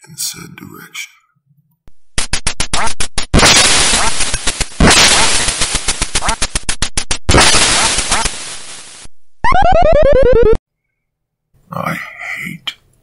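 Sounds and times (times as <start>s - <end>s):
rapid gunfire: 2.1s - 9.1s.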